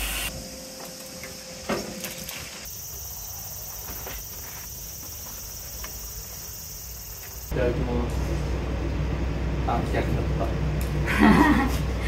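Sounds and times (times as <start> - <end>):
insects chirring: 0.3 - 7.6.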